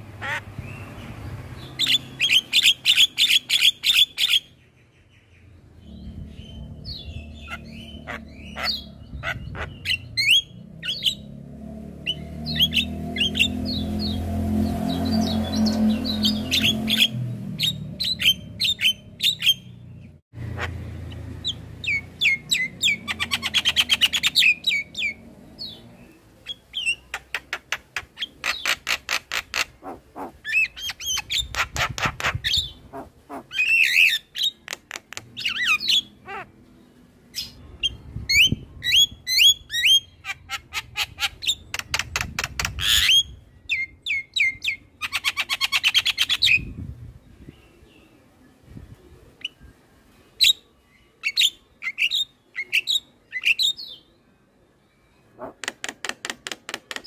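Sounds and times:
bird squawky calls: 0.1s - 0.8s, 5.8s - 11.3s, 26.5s - 36.6s.

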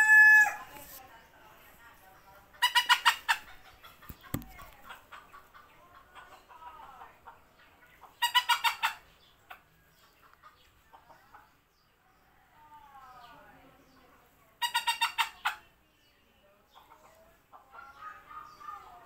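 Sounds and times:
chicken clucking: 2.3s - 11.7s, 13.2s - 15.8s, 16.6s - 19.0s.

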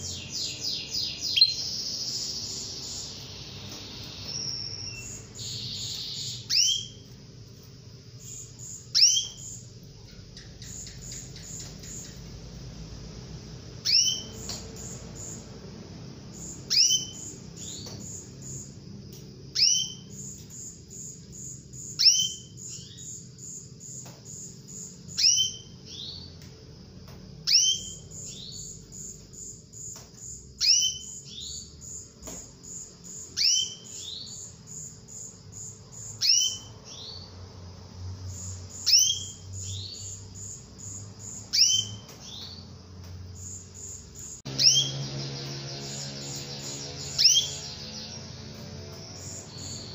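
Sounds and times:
canary calling: 0.0s - 7.6s, 8.2s - 12.8s, 13.7s - 15.6s, 16.2s - 18.7s, 19.5s - 26.4s, 27.4s - 30.0s, 30.6s - 32.0s, 32.6s - 37.5s, 38.3s - 42.8s, 43.4s - 49.9s.

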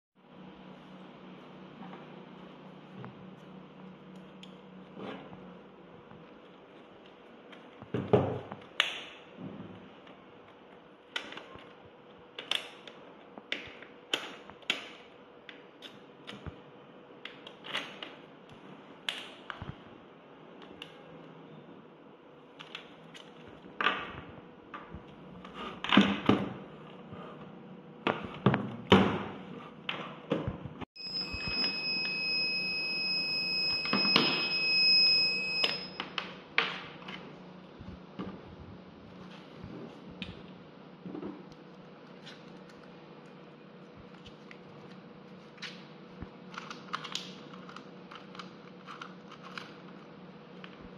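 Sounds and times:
electronic buzzer beep: 31.0s - 36.0s.

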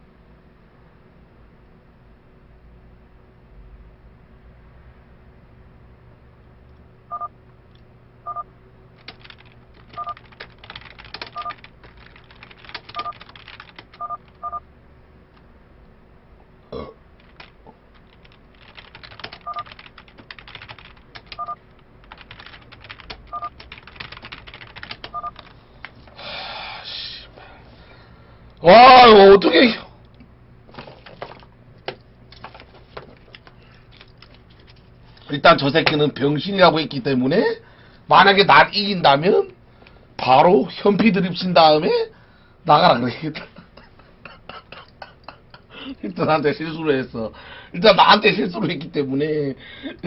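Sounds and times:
computer keyboard typing: 9.0s - 14.6s, 17.2s - 25.6s, 31.0s - 34.9s.

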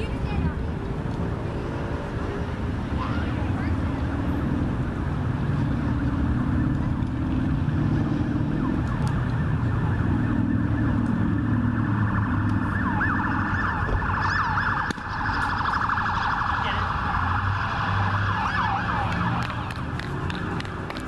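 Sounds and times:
siren wailing: 5.4s - 20.0s.

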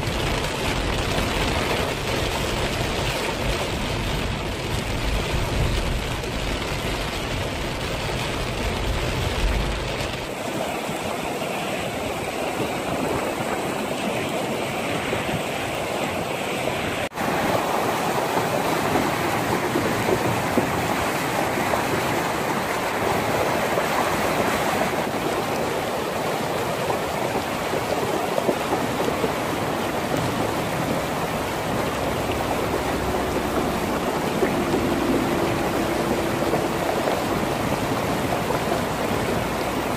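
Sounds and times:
car rumble: 0.0s - 10.3s, 30.4s - 39.9s
flood water rushing: 0.0s - 39.9s
rain: 0.0s - 39.9s.

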